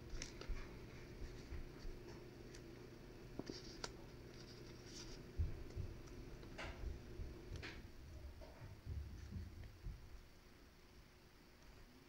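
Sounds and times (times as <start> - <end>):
paper rustling and scraping: 3.4 - 5.8.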